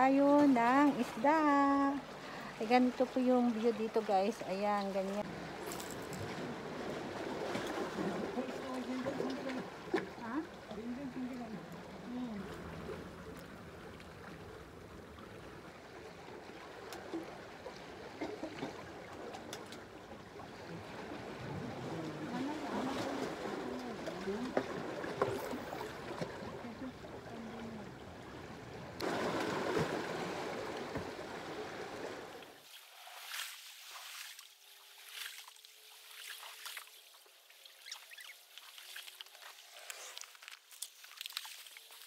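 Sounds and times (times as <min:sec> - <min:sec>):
wind: 0:00.0 - 0:42.0
sea washing on rocks: 0:29.0 - 0:32.4.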